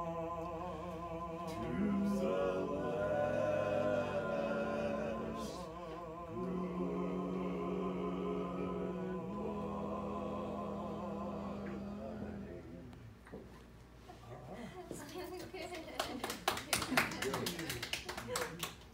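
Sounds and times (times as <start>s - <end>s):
male vocal quartet singing: 0.0s - 12.9s.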